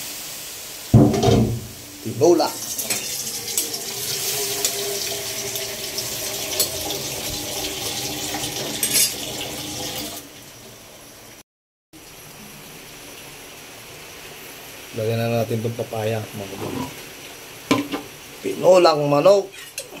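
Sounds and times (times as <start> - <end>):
broth boiling and bubbling: 0.8 - 11.2
metal ladle stirring and clinking: 2.8 - 5.7, 6.5 - 6.9, 8.4 - 9.3.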